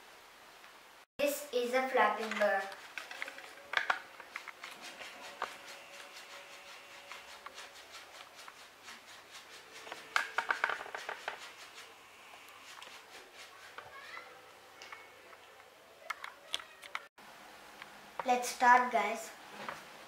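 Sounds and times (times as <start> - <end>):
paper clicks and rustles: 2.2 - 8.6, 9.6 - 11.9.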